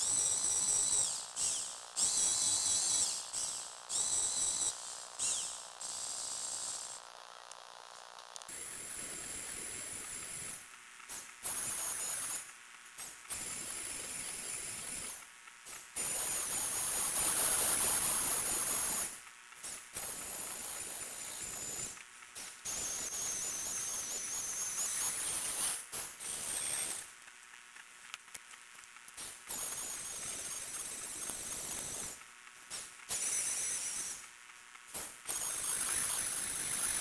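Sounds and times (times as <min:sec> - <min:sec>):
servo motors whining: 0:00.0 - 0:07.0
gears whirring: 0:00.0 - 0:37.0.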